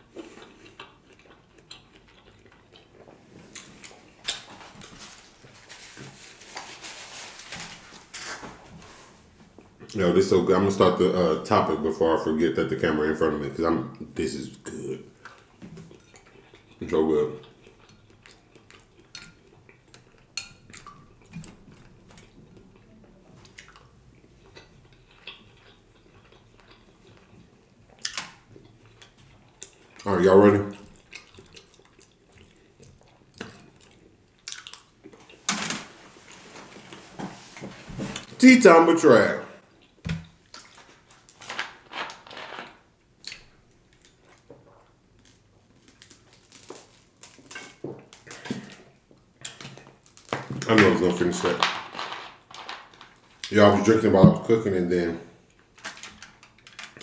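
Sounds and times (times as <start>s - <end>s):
chewing and mouth noises: 0.0s - 5.6s, 15.1s - 30.1s, 30.7s - 35.5s
plastic bottle crinkling: 45.2s - 48.8s, 49.8s - 53.4s.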